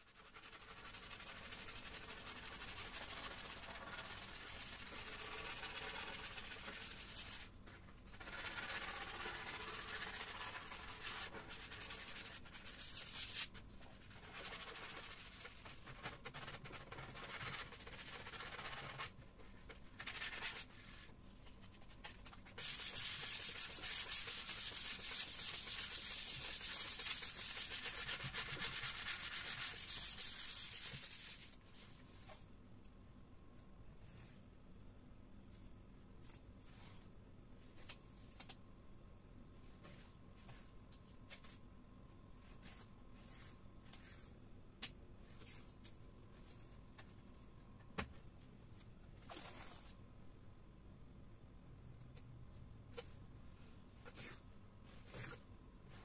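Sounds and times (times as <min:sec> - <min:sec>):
sandpaper scratching on wood: 0:00.1 - 0:07.5, 0:08.1 - 0:13.5, 0:22.6 - 0:31.5.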